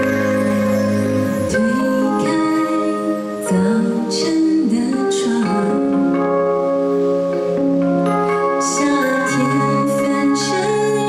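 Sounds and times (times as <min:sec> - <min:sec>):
sustained keyboard chords: 0:00.0 - 0:11.0
woman singing: 0:01.4 - 0:06.4, 0:08.6 - 0:11.0.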